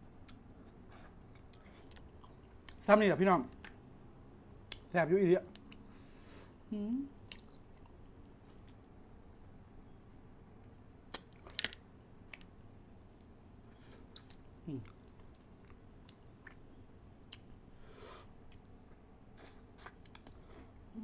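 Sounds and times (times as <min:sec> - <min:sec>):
person chewing: 0:00.3 - 0:02.8, 0:07.3 - 0:08.8, 0:13.2 - 0:16.7, 0:18.5 - 0:20.8.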